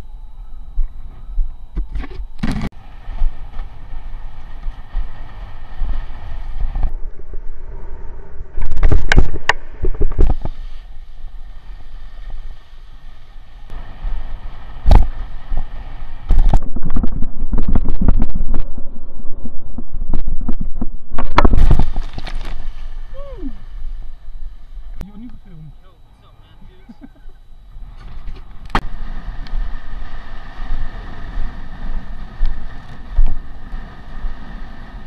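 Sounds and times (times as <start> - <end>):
wind buffeting microphone: 13.7 - 25.7, 27.7 - 35.0.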